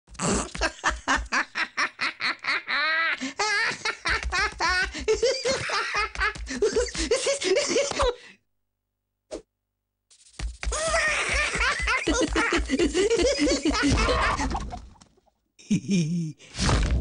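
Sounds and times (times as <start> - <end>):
cartoon voices giggling: 10.7 - 14.8.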